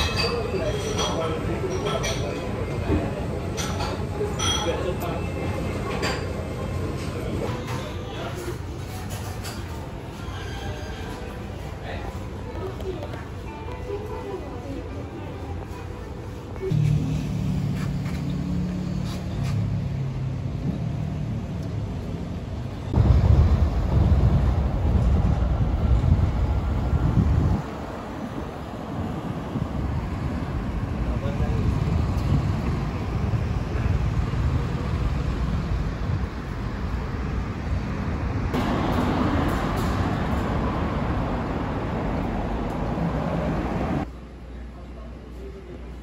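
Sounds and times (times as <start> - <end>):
vehicle engine humming: 16.0 - 44.5
rumble of passing cars: 16.6 - 45.1.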